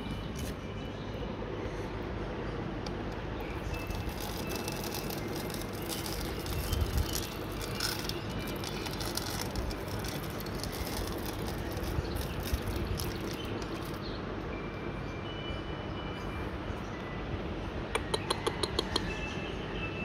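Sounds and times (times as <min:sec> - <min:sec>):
steady low rumble: 0:00.0 - 0:15.0
rice pattering on concrete: 0:03.6 - 0:14.0.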